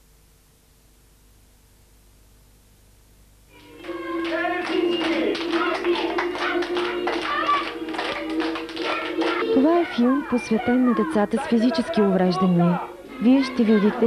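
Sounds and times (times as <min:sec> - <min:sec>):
music: 0:03.5 - 0:14.0
children clapping in rhythm: 0:03.6 - 0:09.8
voices: 0:03.6 - 0:14.0.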